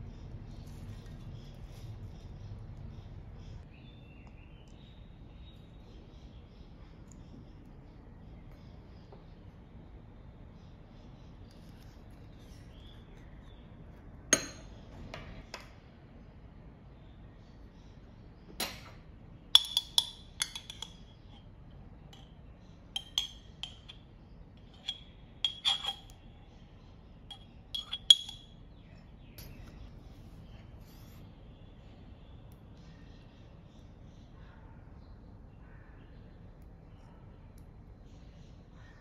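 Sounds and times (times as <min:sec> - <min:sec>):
spoon clinking against ceramic bowl: 0:14.3 - 0:14.8, 0:19.6 - 0:21.5, 0:22.1 - 0:26.2, 0:27.3 - 0:28.6.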